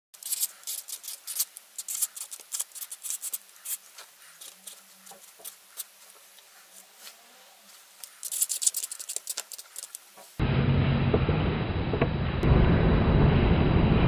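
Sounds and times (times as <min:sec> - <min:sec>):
marker pen scratching on card: 0:00.2 - 0:06.0, 0:08.0 - 0:10.0.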